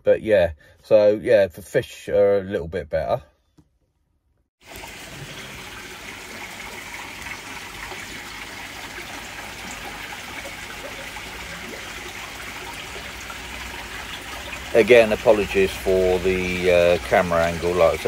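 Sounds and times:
water trickling and splashing: 0:04.6 - 0:18.0.

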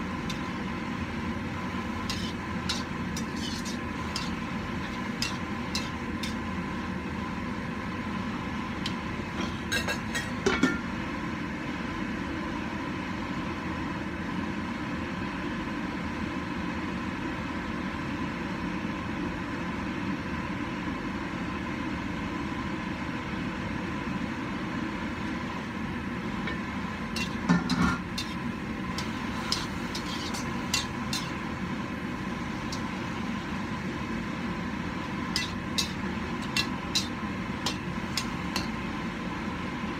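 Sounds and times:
wok hissing and rumbling: 0:00.0 - 0:39.9
metal lid clattering on wok: 0:02.0 - 0:06.4, 0:09.4 - 0:10.9, 0:26.5 - 0:28.4, 0:29.0 - 0:31.4, 0:35.3 - 0:38.8.

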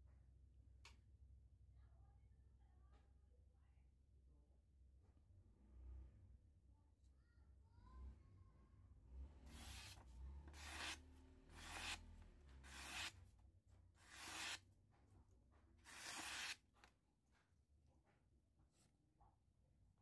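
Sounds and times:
knife slicing paper: 0:09.5 - 0:13.2, 0:14.0 - 0:14.6, 0:15.8 - 0:16.6.

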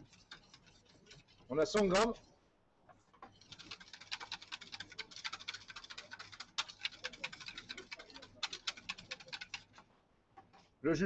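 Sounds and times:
whisk beating in metal bowl: 0:00.0 - 0:02.3, 0:03.3 - 0:09.8.

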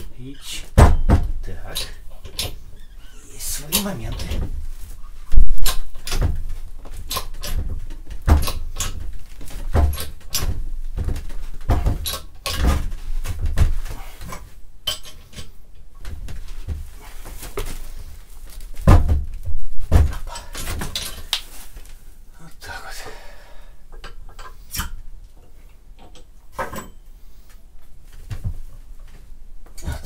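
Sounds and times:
dull thump: 0:18.8 - 0:21.0.

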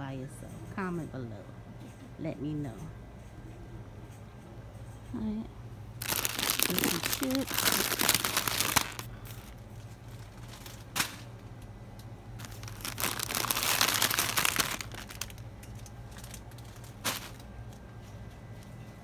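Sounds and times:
steady low hum: 0:00.0 - 0:19.0
plastic packaging crinkling: 0:06.0 - 0:11.2, 0:12.4 - 0:17.5.

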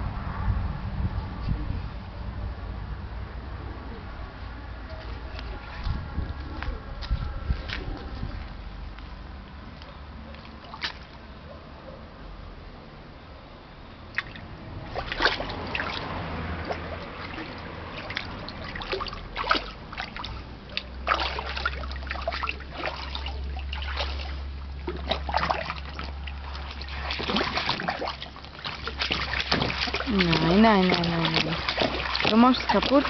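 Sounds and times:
water splashing in a pool: 0:10.3 - 0:11.3, 0:14.1 - 0:33.0.

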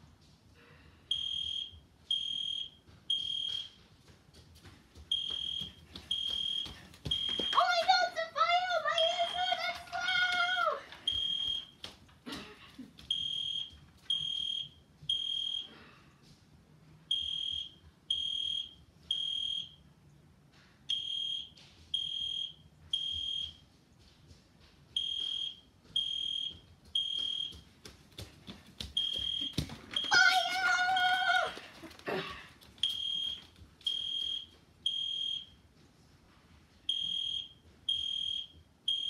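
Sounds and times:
high electronic alarm beeps: 0:01.1 - 0:03.8, 0:05.1 - 0:07.6, 0:11.1 - 0:11.7, 0:13.1 - 0:15.7, 0:17.1 - 0:19.8, 0:20.9 - 0:23.6, 0:25.0 - 0:27.6, 0:29.0 - 0:30.2, 0:32.8 - 0:35.5, 0:36.9 - 0:39.0.

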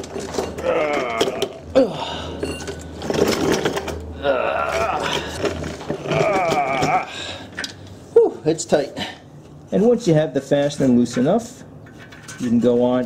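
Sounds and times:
rusty fastener creaking and squealing: 0:09.7 - 0:13.0.

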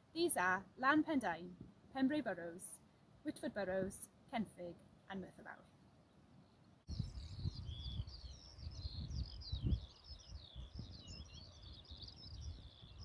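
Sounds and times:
wind on microphone: 0:06.9 - 0:13.0.

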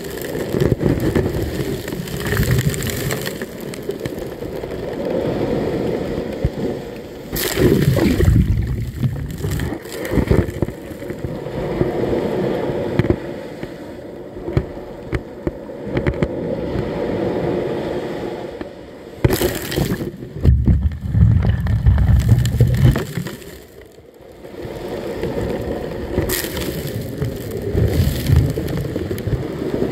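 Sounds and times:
sharp water splashes: 0:07.3 - 0:11.0, 0:19.2 - 0:23.9, 0:26.2 - 0:29.1
muffled sloshing water: 0:07.3 - 0:11.3
heavy low rumble: 0:20.2 - 0:23.0.

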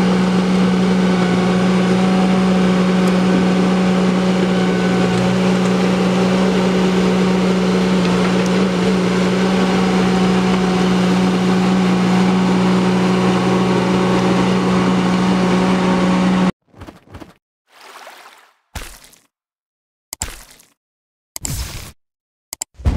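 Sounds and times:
skid steer engine running: 0:00.0 - 0:16.5
loader digging rocky soil: 0:00.0 - 0:17.2.

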